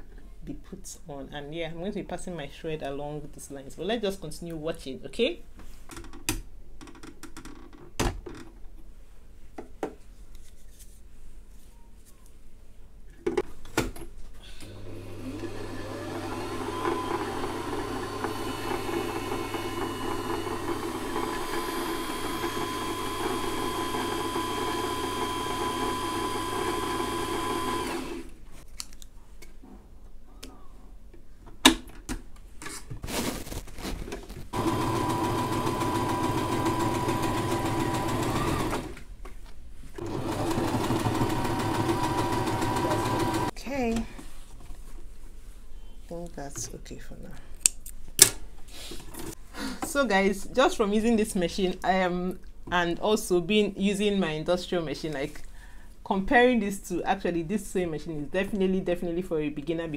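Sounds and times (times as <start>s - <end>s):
sewing machine motor running: 14.8s - 28.3s, 34.5s - 39.0s, 40.0s - 43.5s.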